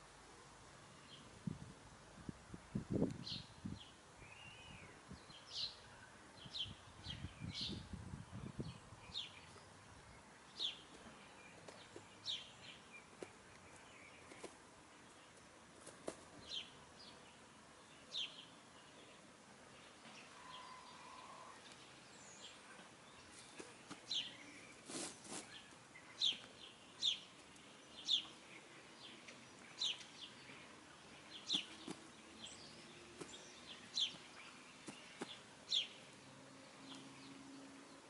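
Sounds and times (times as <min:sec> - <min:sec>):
rustle: 0:00.0 - 0:38.0
bird chirps: 0:20.0 - 0:36.1.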